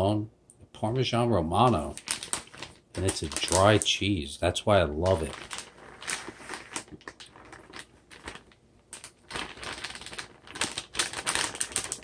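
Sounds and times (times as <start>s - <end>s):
plastic pouch crinkling: 1.6s - 4.0s, 5.0s - 12.0s.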